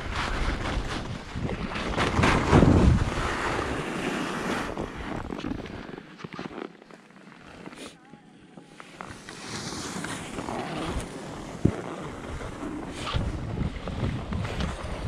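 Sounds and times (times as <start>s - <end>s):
wind buffeting microphone: 0.0s - 3.8s, 11.6s - 15.0s
skis scraping over snow: 0.0s - 8.0s, 8.7s - 15.0s.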